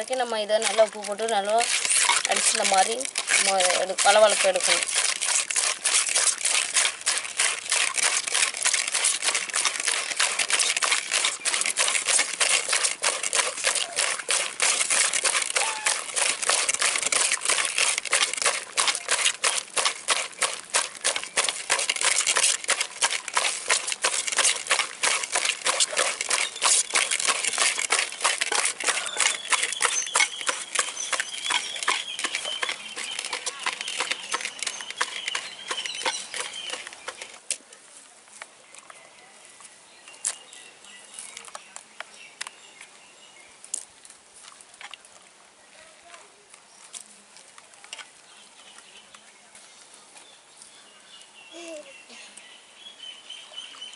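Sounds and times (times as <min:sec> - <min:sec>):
salt crackling on snail meat: 0:00.0 - 0:37.6.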